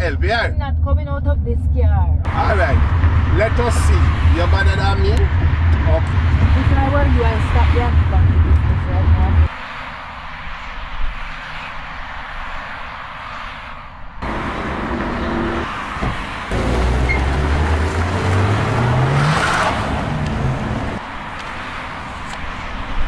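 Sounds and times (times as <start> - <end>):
car engine accelerating: 2.3 - 9.5, 14.2 - 21.0.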